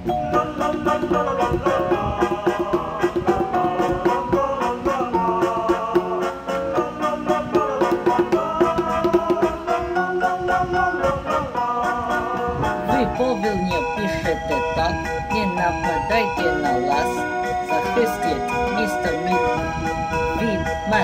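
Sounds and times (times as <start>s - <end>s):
instrumental music with steady beat: 0.0s - 21.0s.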